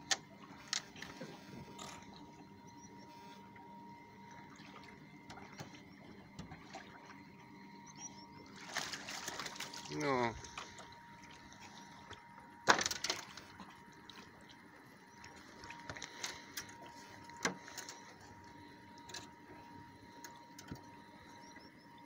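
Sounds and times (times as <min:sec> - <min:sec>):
water splashing against boat: 0:04.2 - 0:07.3, 0:08.4 - 0:21.2.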